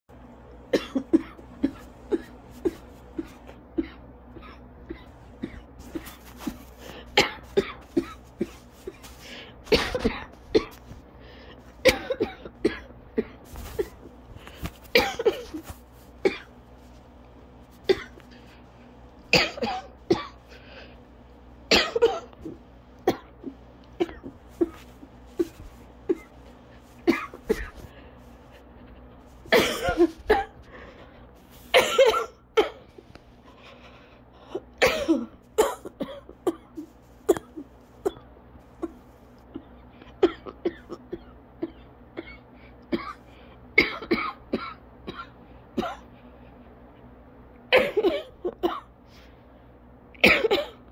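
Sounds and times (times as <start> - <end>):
person coughing harshly: 0.7 - 10.9, 11.8 - 16.5, 17.8 - 18.2, 19.3 - 20.6, 21.7 - 26.4, 27.0 - 28.0, 29.5 - 30.6, 31.7 - 32.9, 34.5 - 46.1, 47.7 - 48.9, 50.2 - 50.9.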